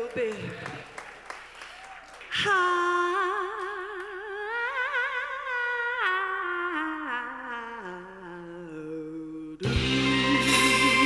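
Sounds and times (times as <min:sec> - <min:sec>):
woman singing unaccompanied: 0:02.4 - 0:11.0.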